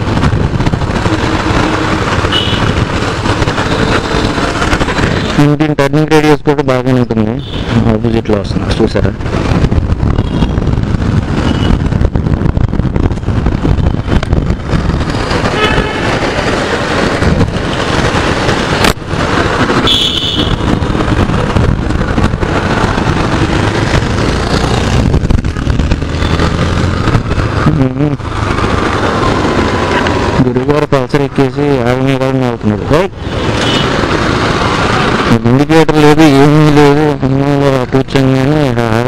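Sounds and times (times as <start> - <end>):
motorcycle engine running: 0.0 - 5.4, 9.2 - 30.8
road and wind noise: 0.0 - 39.0
vehicle horn toot: 2.3 - 2.7, 10.2 - 10.6, 15.5 - 16.2, 19.8 - 20.7, 33.6 - 33.9.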